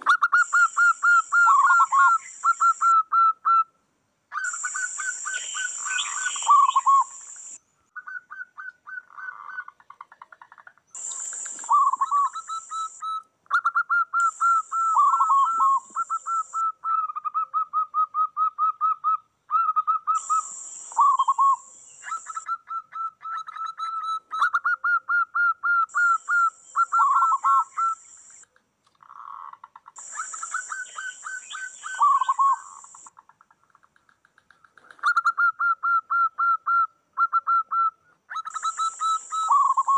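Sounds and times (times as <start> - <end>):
high-pitched hissy bursts: 11.0 - 13.0, 20.2 - 22.4, 30.0 - 33.1
doves cooing: 14.2 - 16.6.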